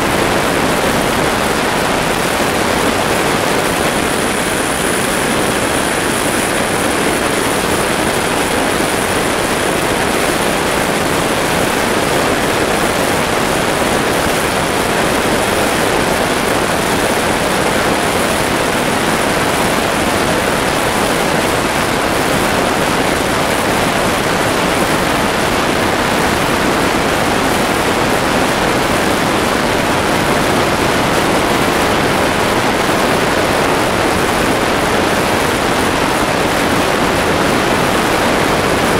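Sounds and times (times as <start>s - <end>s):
turboprop engines and propellers: 0.0s - 25.4s.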